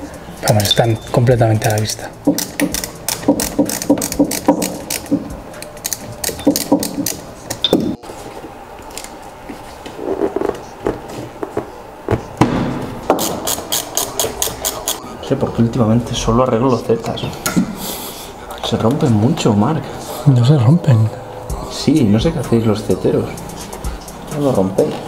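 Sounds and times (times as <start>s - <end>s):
hose clamp clicking: 1.6s - 7.8s.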